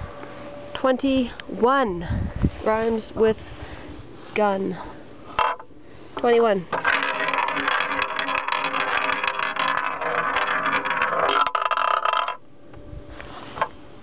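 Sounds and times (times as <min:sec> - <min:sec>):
roulette ball rolling rattle: 0:05.4 - 0:05.7, 0:06.7 - 0:12.4.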